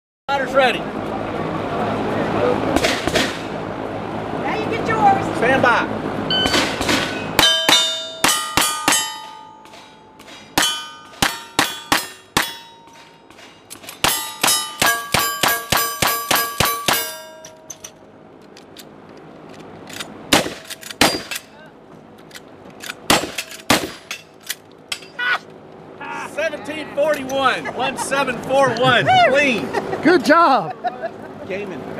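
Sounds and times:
steel plate ringing clang: 6.3 - 18.0, 21.0 - 21.5
gunshots: 20.3 - 21.4, 23.1 - 24.1.

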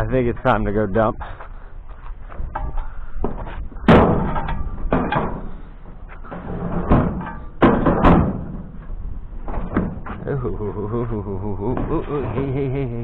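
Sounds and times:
sharp bangs and knocks: 2.5 - 10.2.

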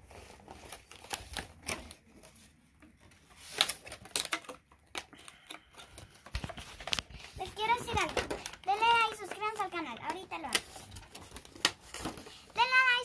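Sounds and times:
sharp packaging crackles: 0.0 - 2.5, 3.2 - 13.0
toy packaging clicks and rustles: 0.0 - 13.0.

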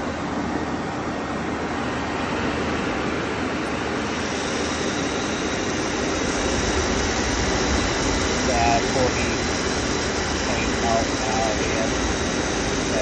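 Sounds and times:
blower fan air rush: 0.0 - 13.0
low hum: 4.0 - 13.0.

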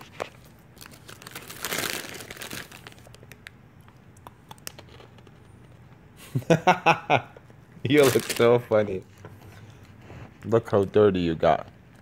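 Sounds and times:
treat bag crinkling: 0.0 - 3.5, 7.8 - 9.0.

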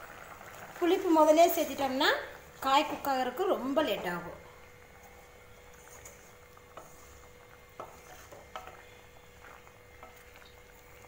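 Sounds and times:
spatula tapping and scraping pan: 6.0 - 8.9.

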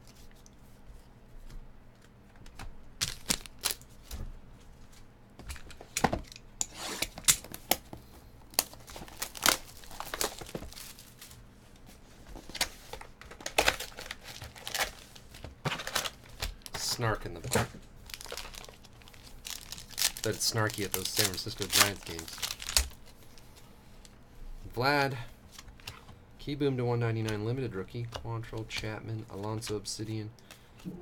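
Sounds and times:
plastic wrapper crinkling: 3.0 - 3.9, 8.5 - 11.4, 12.6 - 23.5.

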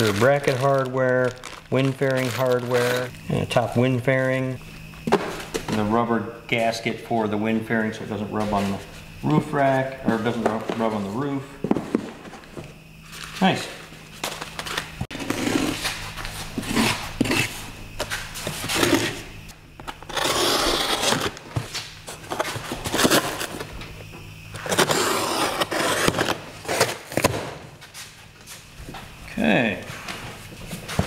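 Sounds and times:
cardboard and tape scraping: 14.2 - 17.6, 18.4 - 19.2, 19.9 - 23.7, 24.6 - 27.4.

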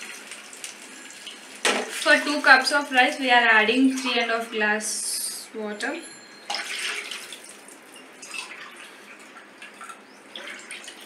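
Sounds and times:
water splashing into a pan: 0.0 - 2.4, 6.5 - 11.0.

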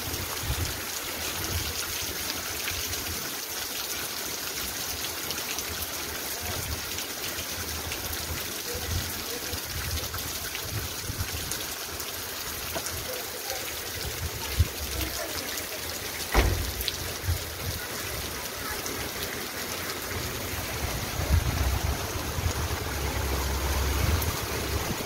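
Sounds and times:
heavy rain pouring: 0.0 - 25.0
water splashing from roofs: 0.0 - 25.0
sharp knocks: 16.3 - 16.9
wind rumble on microphone: 20.8 - 25.0.

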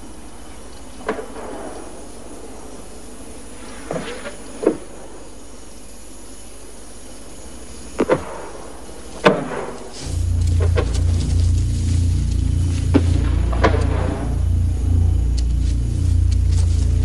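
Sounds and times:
steady background hiss: 0.0 - 17.0
loud low steady sound: 10.0 - 17.0.

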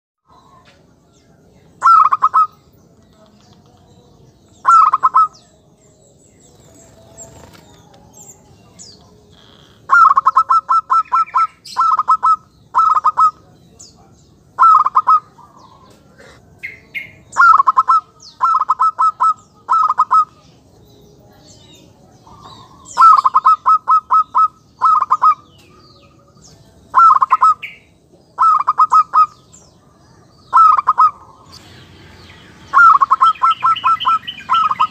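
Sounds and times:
dove cooing: 1.8 - 2.7, 4.6 - 5.4, 6.6 - 13.6, 14.6 - 20.4, 22.2 - 26.3, 26.9 - 34.9.

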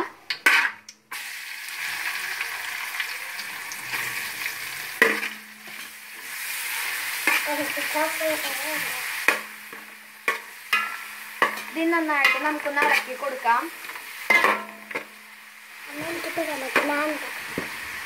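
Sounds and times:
onions sizzling in oil: 0.3 - 18.0
spoon knocking against pan: 9.3 - 13.1.

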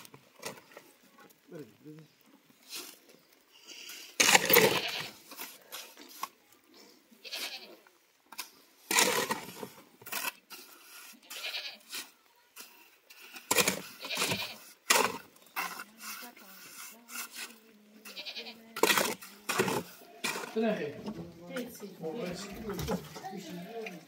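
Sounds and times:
goats bleating: 4.4 - 5.2, 7.2 - 7.8, 11.2 - 11.9, 14.0 - 14.7, 18.0 - 18.6.

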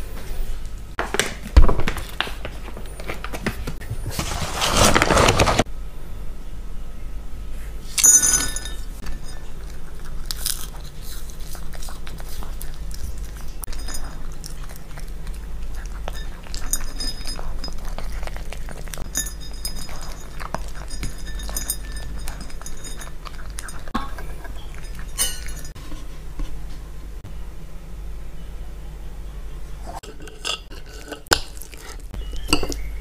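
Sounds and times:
dog chewing dry kibble: 9.0 - 25.8
food clinking against bowl: 13.4 - 26.0, 30.0 - 32.9.

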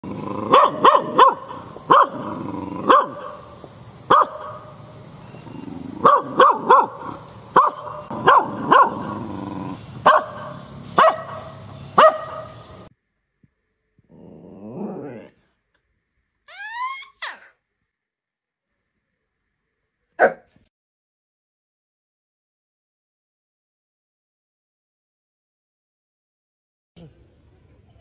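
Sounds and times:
small dog barking: 0.4 - 3.5, 4.1 - 4.8, 6.0 - 9.3, 10.0 - 12.7, 20.2 - 20.6.

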